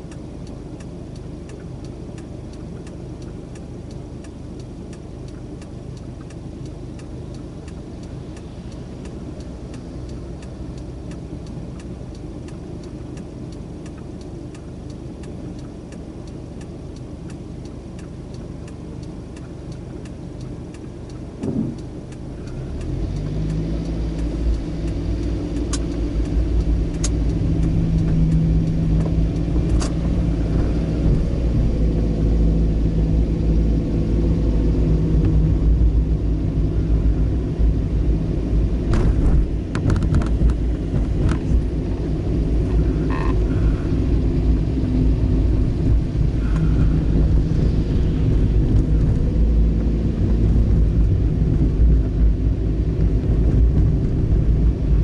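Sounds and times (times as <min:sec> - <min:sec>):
car engine: 0:00.0 - 0:55.0
road rumble: 0:00.0 - 0:55.0
sharp clicks: 0:17.3 - 0:30.1.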